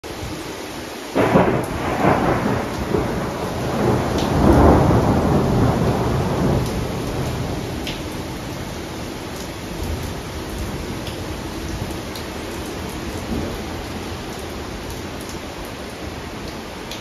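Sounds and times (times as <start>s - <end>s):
heavy rain hissing: 0.1s - 17.0s
thunder rumbling: 1.2s - 8.7s.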